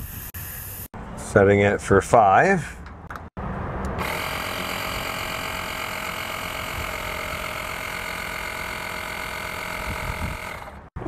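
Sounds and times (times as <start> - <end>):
electric air compressor running: 4.0 - 11.0.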